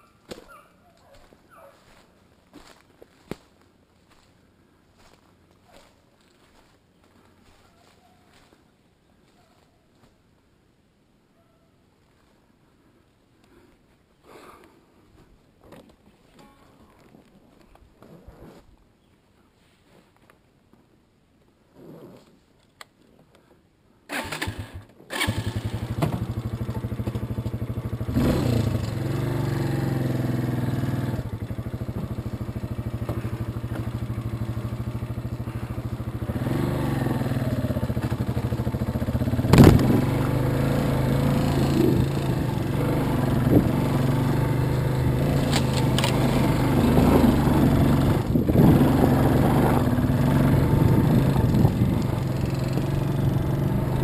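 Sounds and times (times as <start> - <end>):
dirt bike engine running: 25.2 - 54.0.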